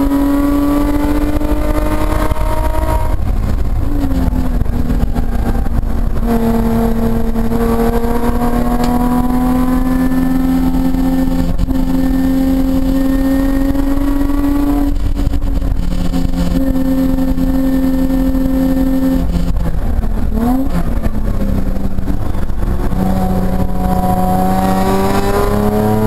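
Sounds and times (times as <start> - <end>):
car engine revving from inside cabin: 0.0 - 15.1, 22.8 - 26.0.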